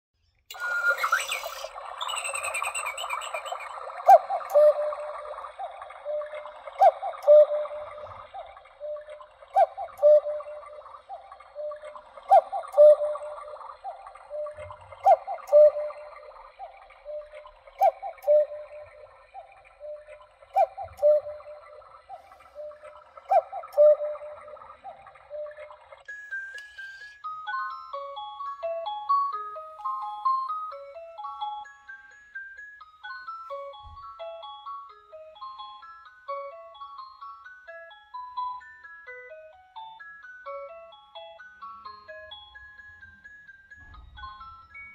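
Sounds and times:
electronic cuckoo call: 0:00.5 - 0:28.1.

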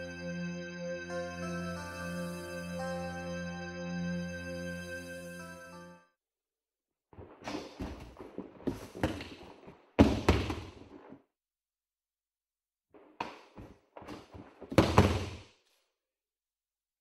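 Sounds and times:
bare feet stamping on mat: 0:07.2 - 0:11.2, 0:13.0 - 0:15.4.

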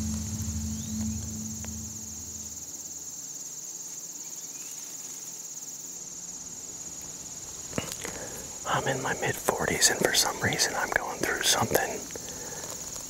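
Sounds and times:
low hum: 0:00.0 - 0:03.1
crickets trilling: 0:00.0 - 0:13.0.

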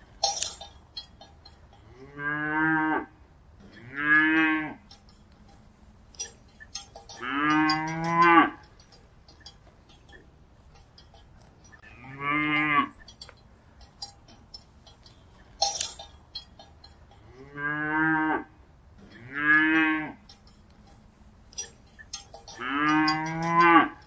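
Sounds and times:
sharp clicks and knocks: 0:00.0 - 0:01.9, 0:03.6 - 0:17.3, 0:18.9 - 0:24.0
cattle mooing: 0:01.9 - 0:03.1, 0:07.1 - 0:08.7, 0:11.8 - 0:13.0, 0:17.3 - 0:18.5, 0:19.1 - 0:20.4, 0:22.4 - 0:24.0.

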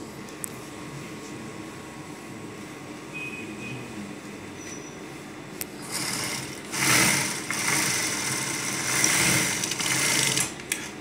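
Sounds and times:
sewing machine stitching fabric: 0:05.8 - 0:10.6.

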